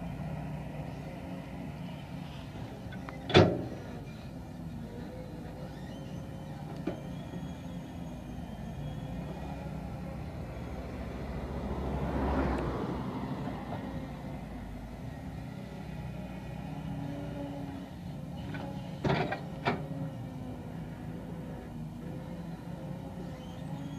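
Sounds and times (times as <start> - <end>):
heavy vehicle engine running: 0.0 - 23.9.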